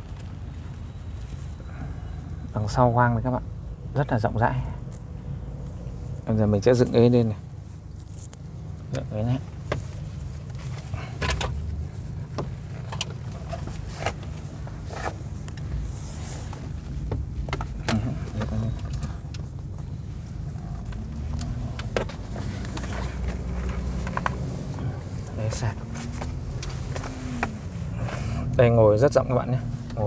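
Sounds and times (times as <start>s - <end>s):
low cabin hum: 0.0s - 30.0s
seat mechanism clicks and knocks: 9.6s - 11.7s, 12.3s - 15.7s, 16.5s - 19.9s, 20.8s - 24.5s.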